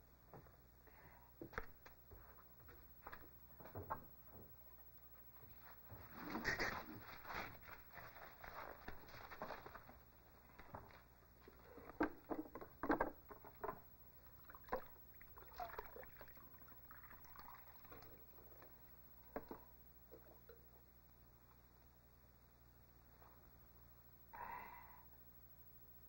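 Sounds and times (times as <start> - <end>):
water trickling into cup: 14.2 - 18.8.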